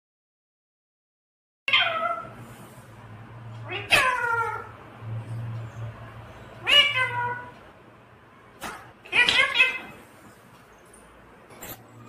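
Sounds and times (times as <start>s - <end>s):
parakeet meow-like calls: 3.6s - 4.8s, 6.6s - 7.5s, 8.6s - 10.0s.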